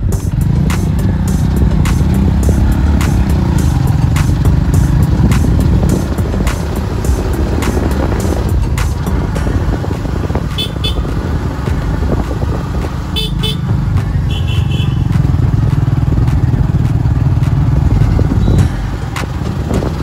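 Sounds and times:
motorcycle engine rumble: 0:00.0 - 0:20.0
motorcycle horn toots: 0:10.4 - 0:11.3, 0:13.1 - 0:15.4, 0:18.3 - 0:18.9.

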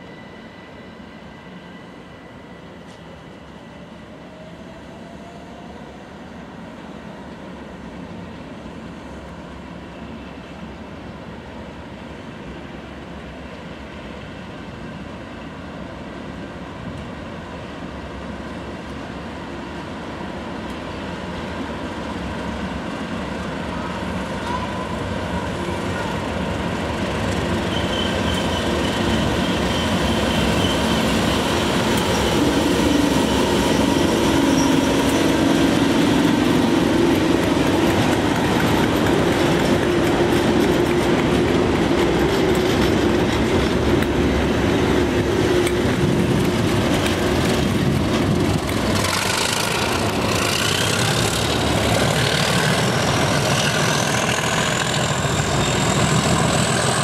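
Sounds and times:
diesel locomotives passing: 0:00.0 - 0:57.0
high wheel squeal: 0:27.6 - 0:35.6, 0:52.2 - 0:57.0.

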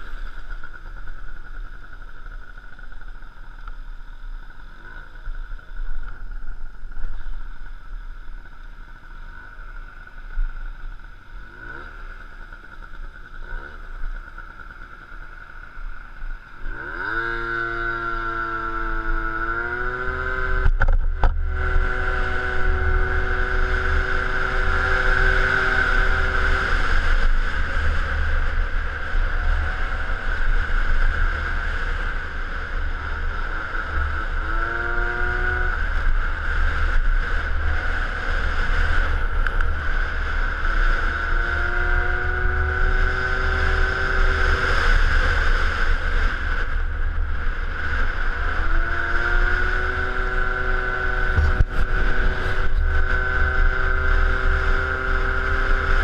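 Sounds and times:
scooter engine idling and revving: 0:00.0 - 0:56.0
wind rushing on microphone: 0:42.0 - 0:56.0.

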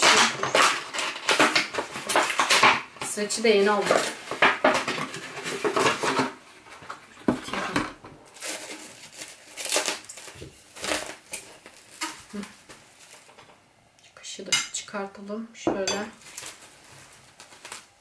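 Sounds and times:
cling film crinkling: 0:03.6 - 0:13.6, 0:16.2 - 0:18.0.

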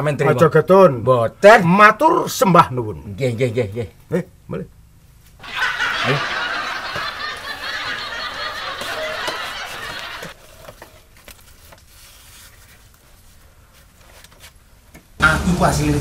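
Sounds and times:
burst of laughter: 0:05.4 - 0:10.3.

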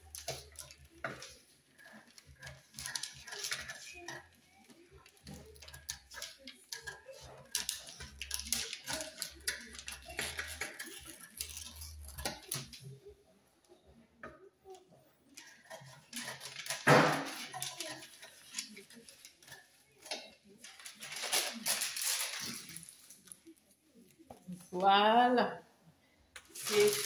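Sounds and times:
paper and fabric rustling: 0:00.0 - 0:13.4, 0:15.2 - 0:25.0, 0:26.4 - 0:27.0
scissors cutting fabric: 0:15.4 - 0:20.2.

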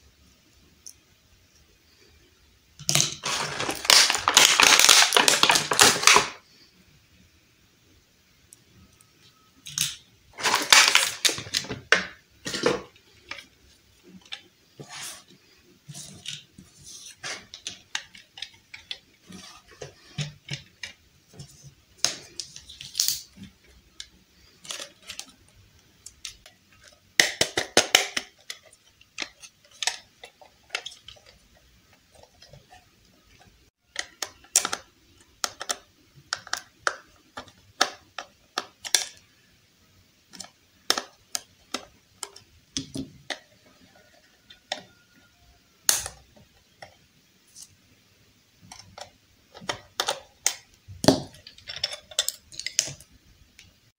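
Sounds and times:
plastic toy clicks and taps: 0:33.9 - 0:39.2.

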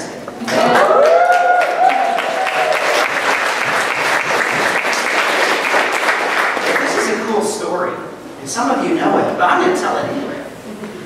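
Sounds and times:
crowd applauding: 0:00.4 - 0:07.4
person cheering: 0:00.6 - 0:03.0.

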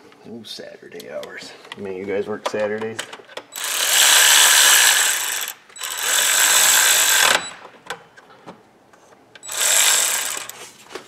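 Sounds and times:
pneumatic air ratchet whirring: 0:03.6 - 0:07.6, 0:09.4 - 0:10.6.

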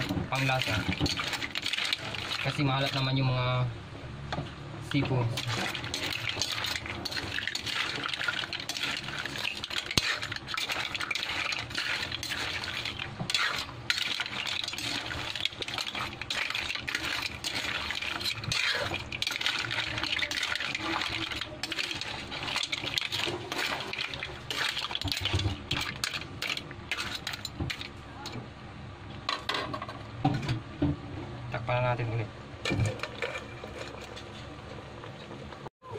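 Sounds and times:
metal ladle scraping a wok: 0:00.0 - 0:03.2, 0:04.9 - 0:27.9.

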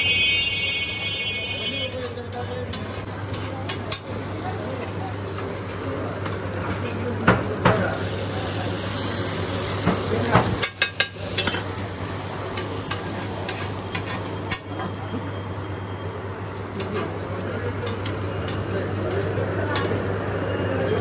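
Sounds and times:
chicken sizzling: 0:02.8 - 0:20.4
metal spatula scraping a griddle: 0:10.3 - 0:11.6.

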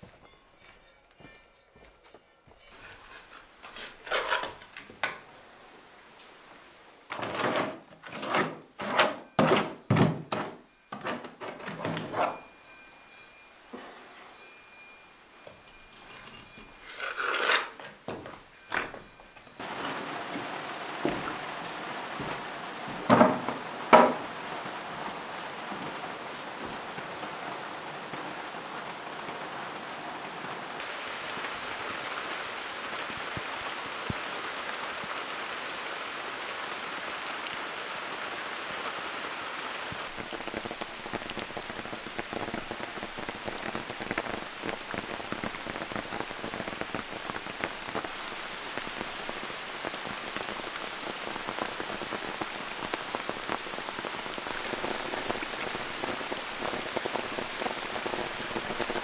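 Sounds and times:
rain falling on grass: 0:02.8 - 0:07.4, 0:18.0 - 0:59.0.

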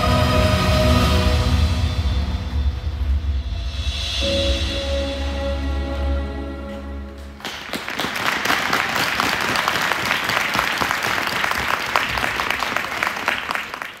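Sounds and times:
skating music: 0:00.0 - 0:03.0, 0:04.2 - 0:08.0
audience applauding: 0:07.2 - 0:14.0.

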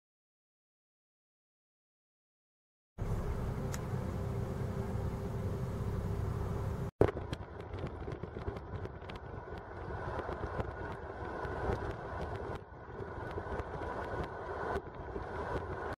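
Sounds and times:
car road noise rumble: 0:03.0 - 0:16.0
wind on microphone: 0:05.7 - 0:16.0
small scattered clicks: 0:07.0 - 0:15.8.

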